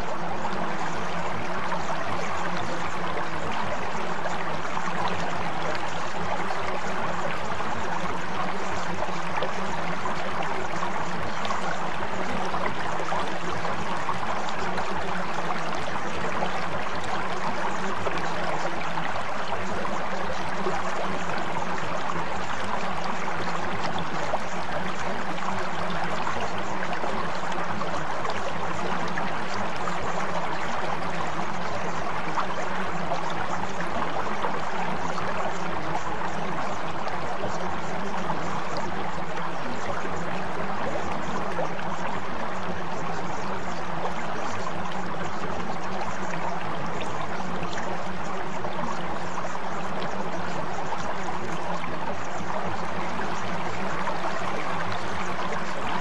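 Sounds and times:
running water: 0.0s - 56.0s.

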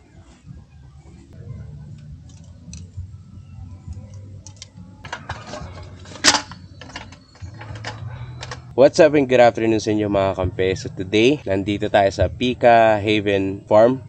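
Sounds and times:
low steady rumble: 9.4s - 13.8s.

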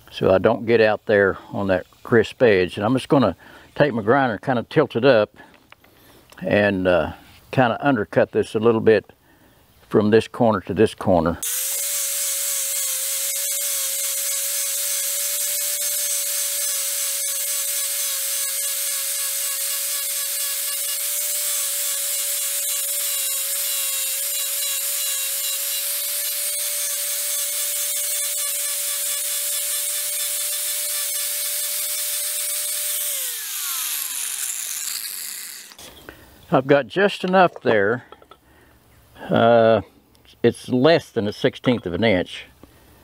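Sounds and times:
angle grinder grinding wood: 11.4s - 36.1s.

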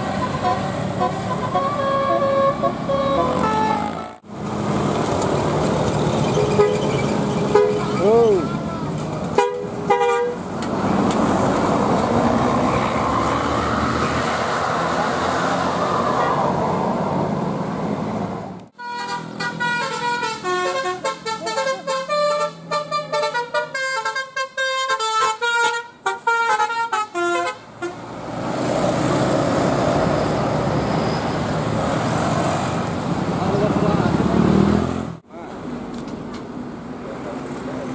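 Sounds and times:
multi-tone musical bus horn: 0.0s - 4.2s, 6.4s - 6.9s, 7.5s - 8.5s, 9.3s - 10.4s, 18.8s - 28.0s
bus engine and road noise: 0.0s - 37.9s.

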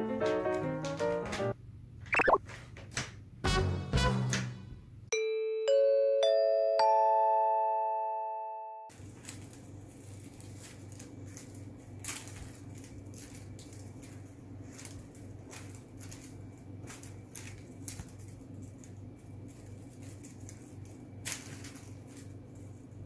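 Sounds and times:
cat playing with feather toy: 9.3s - 23.0s.

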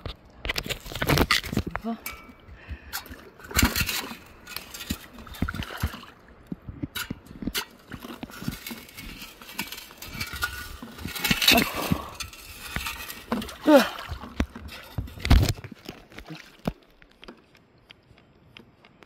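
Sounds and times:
metal scoop scraping wet sand: 0.8s - 6.2s, 6.9s - 15.9s.

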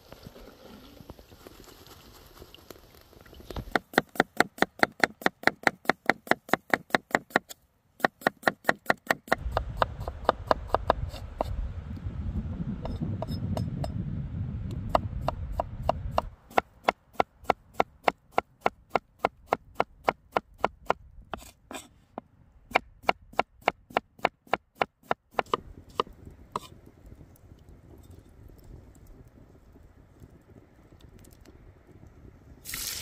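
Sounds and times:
low rumble: 9.4s - 15.9s.

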